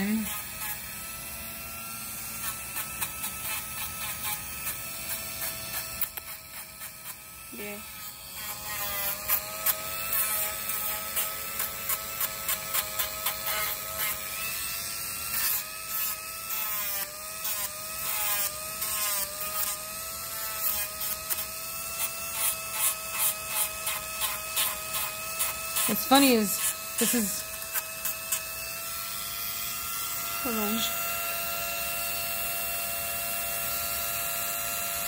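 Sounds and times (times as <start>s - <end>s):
rotary tool whining: 0.0s - 35.0s
sanding drum grinding toenail: 2.3s - 28.9s.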